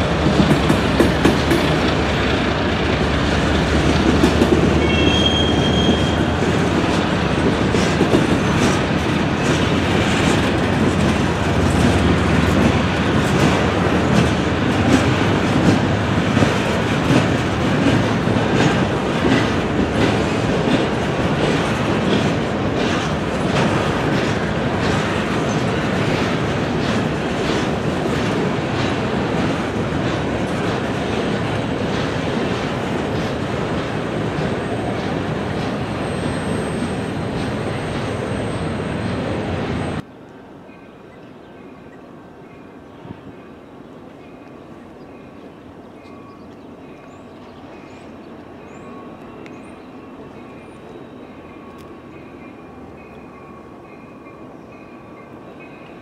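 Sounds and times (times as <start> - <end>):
train wheels clattering over rail joints: 0.0 - 39.7
high-pitched wheel squeal: 4.8 - 6.2.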